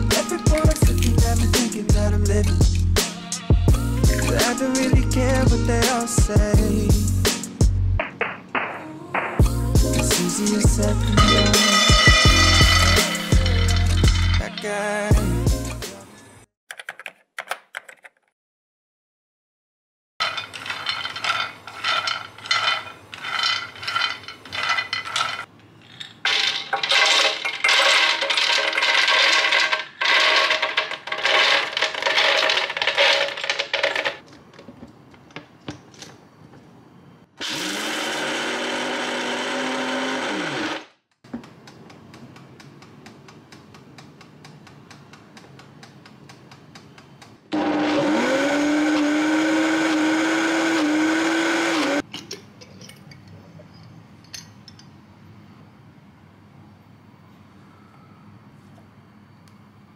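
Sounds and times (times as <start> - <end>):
almonds clattering into plastic jar: 11.2 - 15.0, 20.2 - 34.2
blender motor grinding: 11.3 - 14.4, 26.3 - 34.2, 37.4 - 40.9, 47.5 - 52.0.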